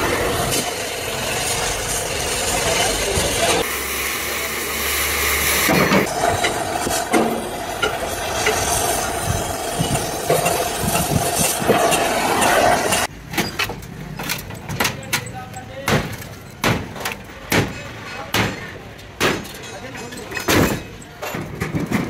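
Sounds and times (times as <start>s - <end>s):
cutting torch hissing: 0.0s - 13.1s.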